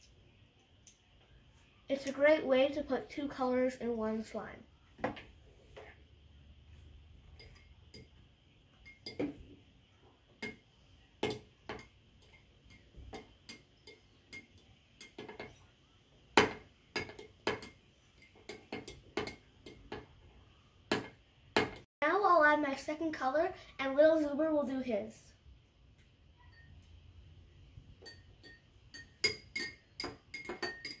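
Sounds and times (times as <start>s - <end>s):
metal spoon clinking glass bowl: 7.3s - 8.2s, 8.8s - 9.4s, 11.2s - 15.6s, 16.4s - 20.0s, 26.4s - 27.0s, 28.0s - 31.0s.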